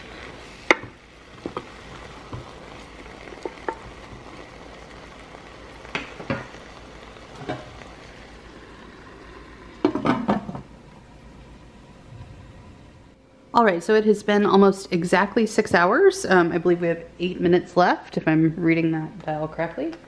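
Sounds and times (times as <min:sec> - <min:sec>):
meat and wine sizzling: 0:00.0 - 0:17.9
wooden spoon knocking on pot: 0:03.4 - 0:03.9.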